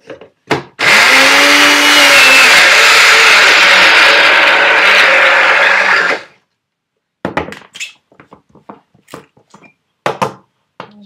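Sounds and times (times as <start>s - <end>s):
cup blender running: 0.8s - 6.4s.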